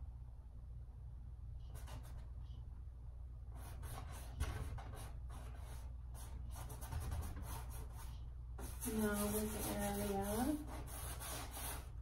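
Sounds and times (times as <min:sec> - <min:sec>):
low room hum: 0:00.0 - 0:12.0
paintbrush scratching on canvas: 0:03.6 - 0:12.0.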